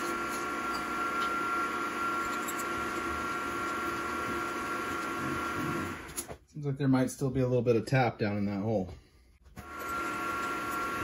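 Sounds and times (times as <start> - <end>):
milling machine spindle whine: 0.0 - 6.3, 9.6 - 11.0.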